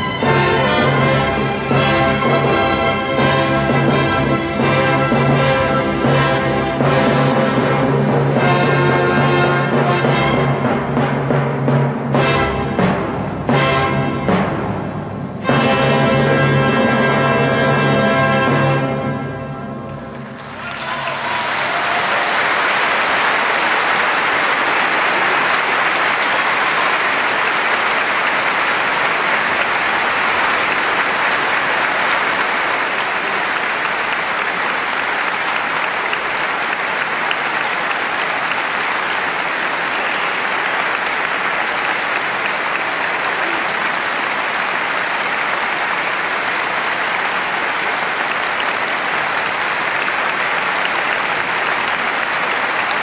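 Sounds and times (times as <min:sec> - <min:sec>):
audience applauding: 0:00.0 - 0:10.8, 0:15.4 - 0:53.0
orchestra chord: 0:00.0 - 0:20.4.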